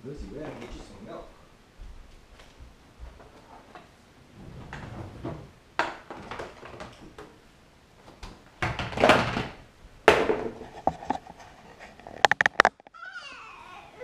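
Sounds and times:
stroller knocking and rattling: 8.6s - 11.2s.

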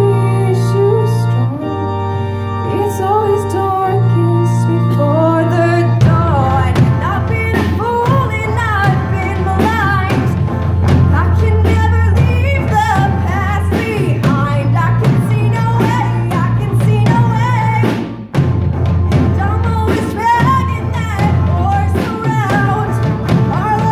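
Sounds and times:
woman singing: 0.0s - 2.0s, 2.6s - 18.1s, 19.1s - 23.9s
live rock band playing: 5.1s - 23.9s.

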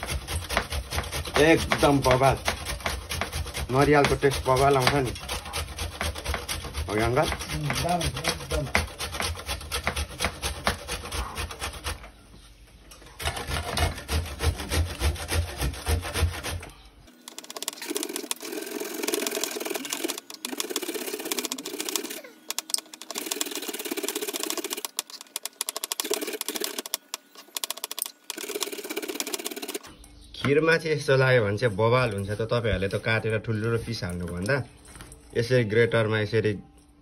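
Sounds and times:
coconut scraping on metal grater: 0.0s - 12.1s, 13.2s - 22.3s.

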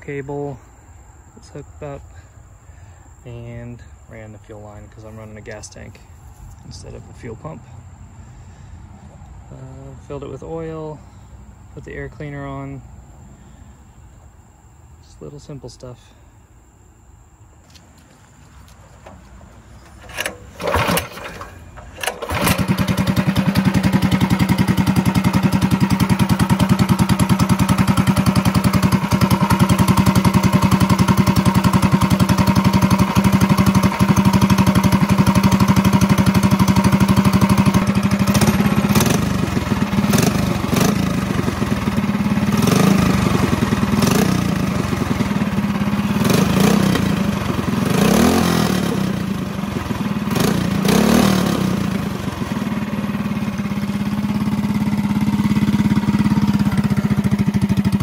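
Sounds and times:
go-kart engine running: 18.8s - 58.0s.

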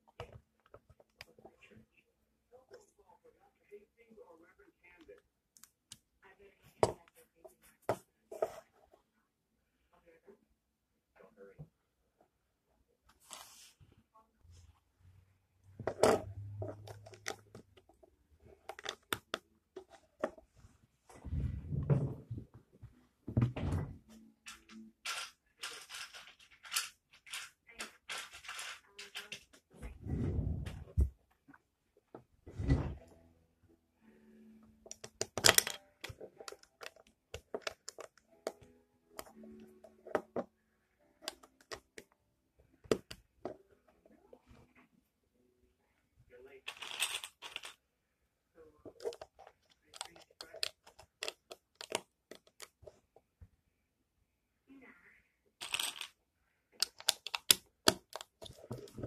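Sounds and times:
plastic bricks clicking together: 24.4s - 29.5s, 34.9s - 38.6s, 49.0s - 52.8s, 56.8s - 59.0s.

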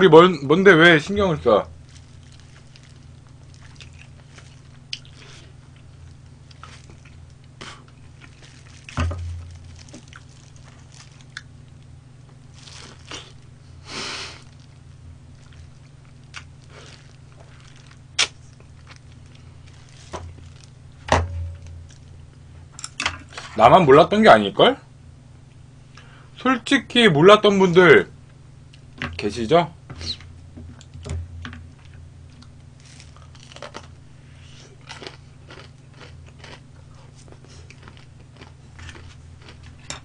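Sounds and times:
steady low hum: 0.0s - 40.0s
chewing and crunching food: 1.7s - 23.5s, 31.6s - 40.0s.

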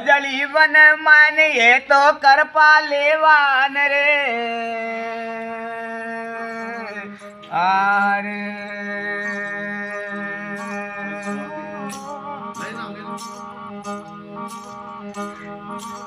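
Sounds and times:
bowed fiddle melody: 4.6s - 16.0s.

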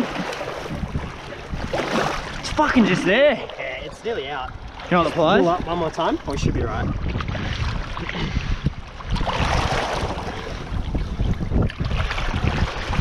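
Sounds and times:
surf sloshing and splashing: 0.0s - 13.0s
wind buffeting microphone: 0.0s - 13.0s.

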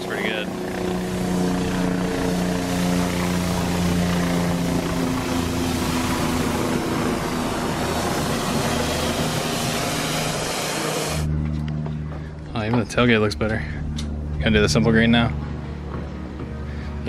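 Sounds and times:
pressure washer engine drone: 0.0s - 17.0s
water jet hissing: 5.3s - 11.3s.

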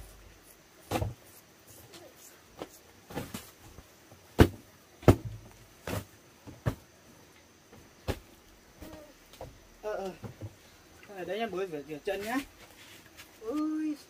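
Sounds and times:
knocks or thuds: 0.9s - 1.2s, 4.4s - 6.8s, 8.0s - 9.6s.

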